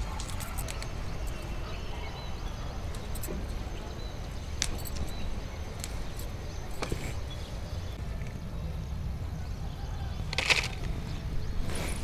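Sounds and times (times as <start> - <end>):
chilli pods snapping: 10.3 - 11.0.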